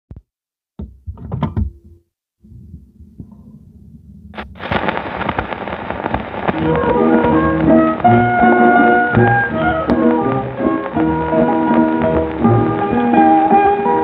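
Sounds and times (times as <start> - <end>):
record crackle and hiss: 2.4 - 14.0
needle dropping on record: 4.4 - 14.0
turntable humming: 4.4 - 14.0.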